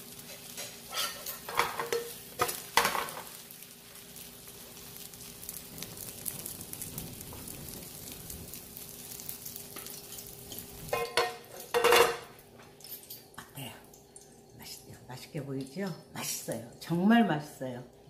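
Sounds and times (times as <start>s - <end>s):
pancake sizzling in oil: 0.0s - 14.5s
metal spatula scraping pan: 0.3s - 2.1s.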